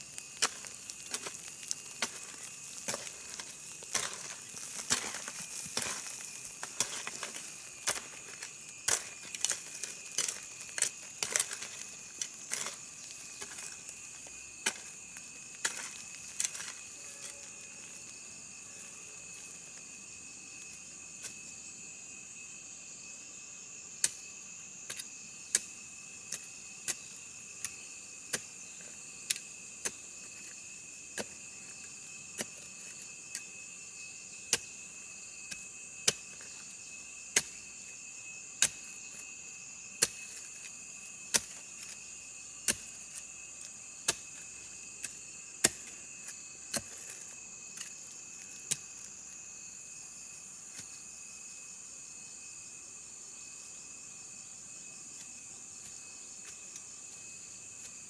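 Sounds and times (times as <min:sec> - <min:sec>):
crickets chirring: 0:00.0 - 0:58.0.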